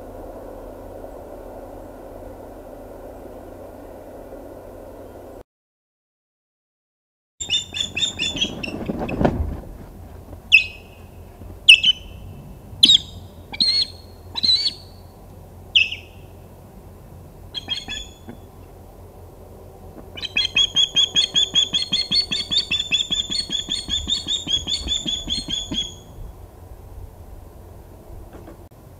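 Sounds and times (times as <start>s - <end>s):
osprey shrill alarm calls: 7.4s - 8.8s, 10.5s - 11.0s, 11.7s - 12.2s, 12.8s - 15.1s, 15.7s - 16.3s, 17.5s - 18.3s, 20.2s - 26.2s.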